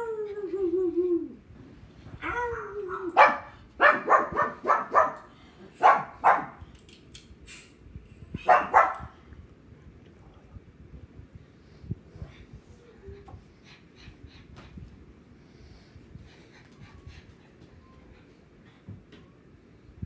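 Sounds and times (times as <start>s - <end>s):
dog barking: 3.2s - 6.6s, 8.4s - 9.1s.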